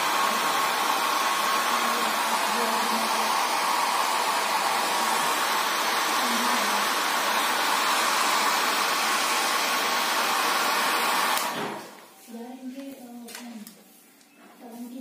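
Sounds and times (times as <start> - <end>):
hair dryer blowing with motor whine: 0.0 - 12.0.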